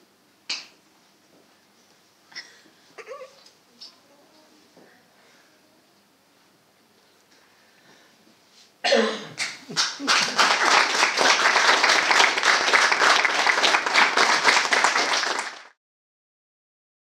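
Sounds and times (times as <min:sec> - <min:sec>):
audience applause: 0:09.7 - 0:15.8.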